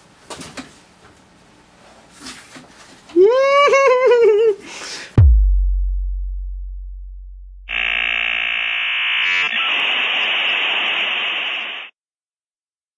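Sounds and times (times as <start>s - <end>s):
deep boom: 5.2s - 7.7s
loud electronic buzz: 6.1s - 11.9s
static hiss: 9.2s - 11.9s.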